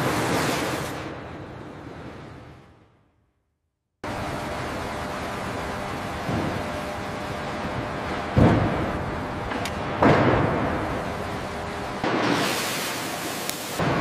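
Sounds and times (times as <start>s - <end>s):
industrial background noise: 0.0s - 3.3s, 4.0s - 14.0s
heavy slams: 8.3s - 11.0s.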